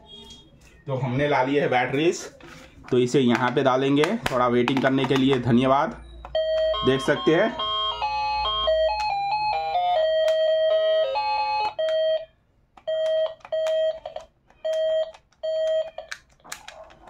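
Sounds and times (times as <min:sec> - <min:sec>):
plastic button clicks: 0:03.3 - 0:05.6
toy phone beeping tune: 0:06.0 - 0:16.2.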